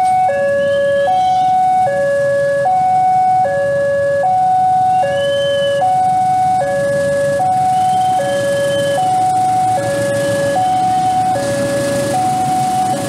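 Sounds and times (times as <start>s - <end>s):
diesel locomotive rumble: 0.0s - 13.0s
level crossing alarm two-tone: 0.0s - 13.0s.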